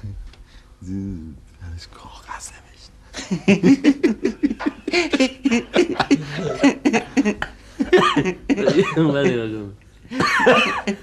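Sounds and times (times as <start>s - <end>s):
man laughing: 3.2s - 9.5s, 10.2s - 11.0s.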